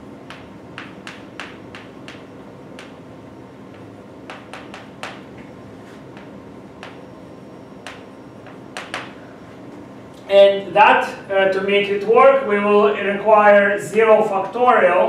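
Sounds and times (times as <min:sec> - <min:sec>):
low room hum: 0:00.0 - 0:15.0
chalk tapping on a blackboard: 0:00.3 - 0:03.0, 0:04.3 - 0:05.2.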